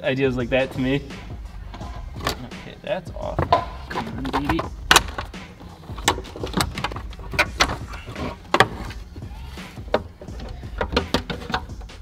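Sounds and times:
plastic panel clicking and knocking: 0:06.0 - 0:09.0, 0:09.9 - 0:11.9.

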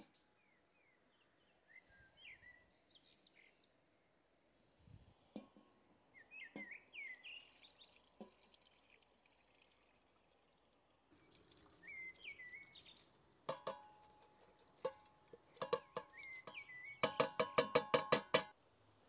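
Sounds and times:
birds chirping: 0:06.1 - 0:08.2, 0:11.7 - 0:13.2, 0:15.4 - 0:17.8
liquid trickling into a pot: 0:06.9 - 0:16.6.

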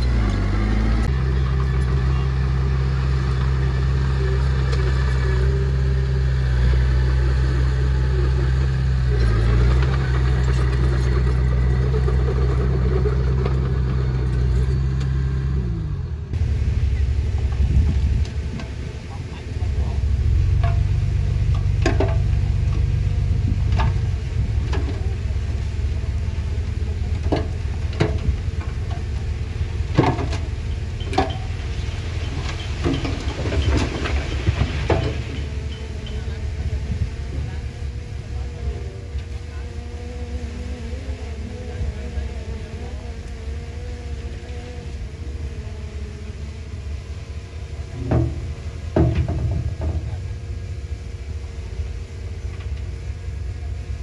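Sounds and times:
bulldozer diesel engine: 0:00.0 - 0:54.0
dump truck engine running: 0:00.0 - 0:54.0
soil sliding out: 0:20.3 - 0:38.4.

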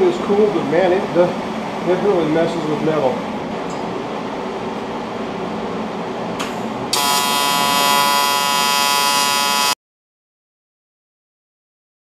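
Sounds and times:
welding arc buzzing: 0:06.9 - 0:09.8.

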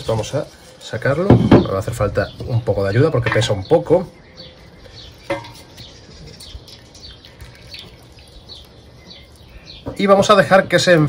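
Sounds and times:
small birds chirping: 0:00.0 - 0:11.0
water dripping into pot: 0:06.6 - 0:09.9.

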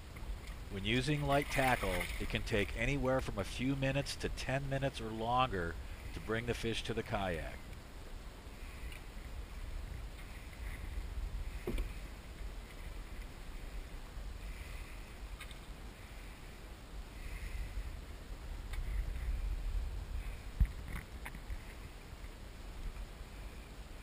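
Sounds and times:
steady low rumble: 0:00.0 - 0:24.0
soft hissy splashes: 0:00.4 - 0:02.4
water sloshing around kayak: 0:00.4 - 0:02.7.

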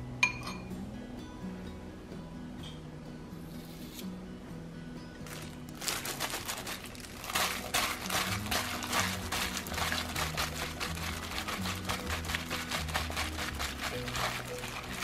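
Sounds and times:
plastic glove crinkling: 0:05.2 - 0:15.0
pieces squishing in sauce: 0:05.3 - 0:15.0.

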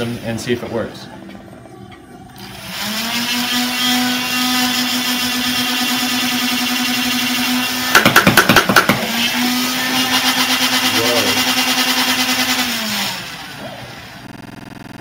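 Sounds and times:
flywheel motors whining: 0:02.4 - 0:08.0, 0:09.0 - 0:14.3.

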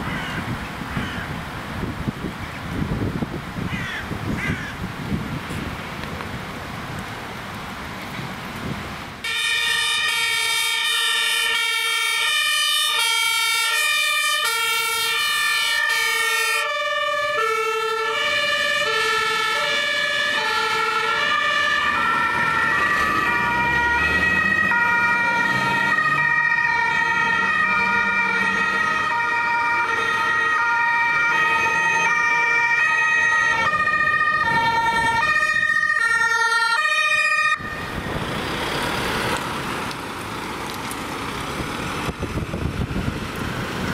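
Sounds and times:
vehicle engine rumbling: 0:00.0 - 0:09.3, 0:37.5 - 0:43.9
two-tone sirens: 0:09.2 - 0:40.4.

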